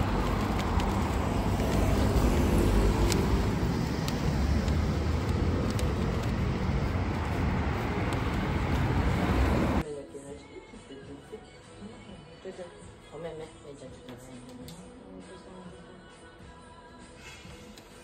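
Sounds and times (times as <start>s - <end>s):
steady road traffic: 0.0s - 9.8s.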